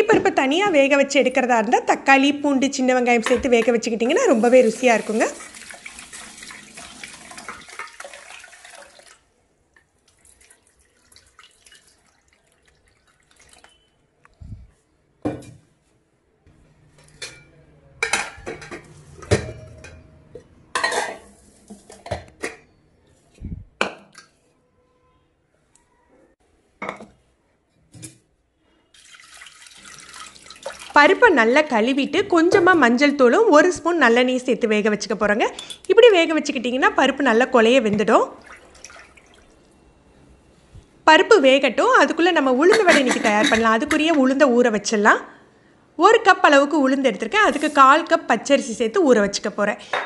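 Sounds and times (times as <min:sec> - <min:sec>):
water sloshing in a pot: 0:03.4 - 0:14.0, 0:28.9 - 0:33.0, 0:37.9 - 0:40.2
water pouring into a pot: 0:04.3 - 0:14.0, 0:28.9 - 0:31.2, 0:38.4 - 0:39.8
pots and plates clinking: 0:17.0 - 0:22.8, 0:42.6 - 0:44.2.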